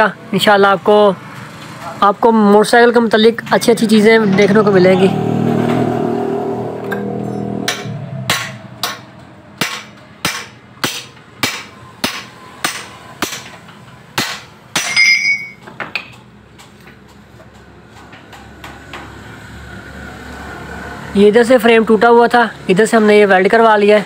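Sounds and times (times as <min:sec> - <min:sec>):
hammer striking steel frame: 0:06.9 - 0:16.2.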